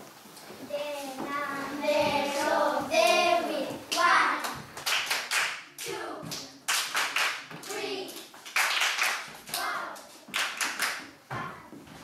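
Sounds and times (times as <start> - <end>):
children singing: 1.2 - 4.6
hand clapping: 3.9 - 5.6, 6.3 - 9.7, 10.3 - 11.1.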